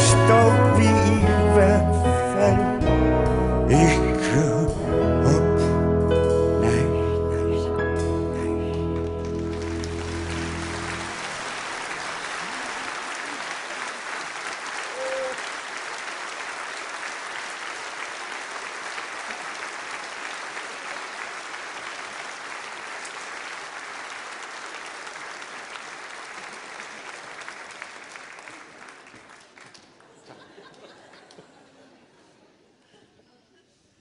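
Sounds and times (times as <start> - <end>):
audience applauding: 8.4 - 31.8.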